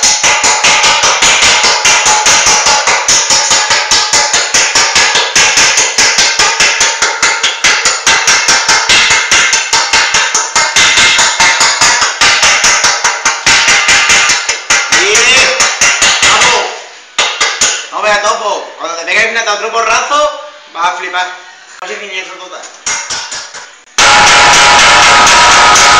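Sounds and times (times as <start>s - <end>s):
hammer beating sheet metal: 0.0s - 18.0s, 22.8s - 25.9s.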